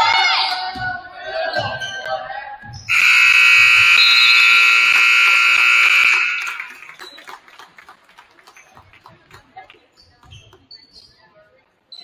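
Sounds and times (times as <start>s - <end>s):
scoreboard horn blast: 2.9s - 6.9s.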